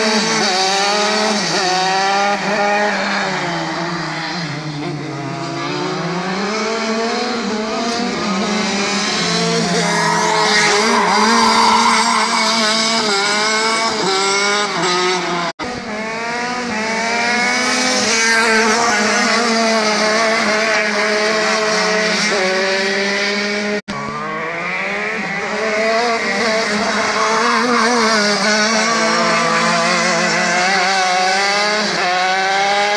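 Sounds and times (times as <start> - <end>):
go-kart engines revving: 0.0 - 32.9.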